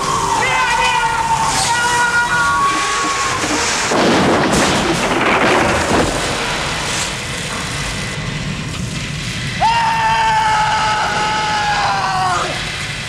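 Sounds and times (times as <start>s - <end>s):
rock and debris collapsing: 2.6s - 7.2s.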